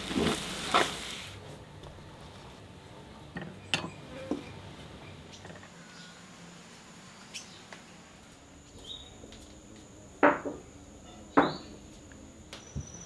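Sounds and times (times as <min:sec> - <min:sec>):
insect chirp: 0:05.3 - 0:13.0
high insect drone: 0:05.5 - 0:13.0.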